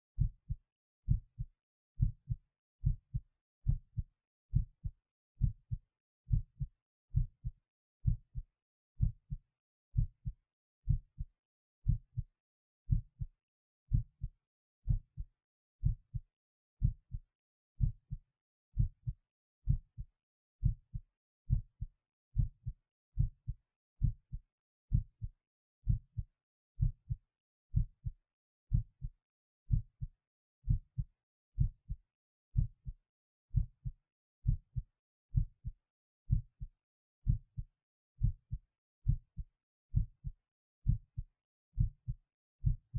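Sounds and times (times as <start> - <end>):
heartbeat thumps: 0.2 - 8.4, 9.0 - 9.4, 10.9 - 12.2, 14.9 - 15.2, 16.8 - 17.2, 17.8 - 18.2, 21.5 - 21.8, 22.4 - 25.3, 25.9 - 26.2, 26.8 - 27.2, 27.8 - 28.1, 28.7 - 29.1, 31.6 - 32.0, 32.6 - 34.8, 35.4 - 35.7, 36.3 - 37.6, 38.2 - 39.4, 40.0 - 41.2, 41.8 - 42.9.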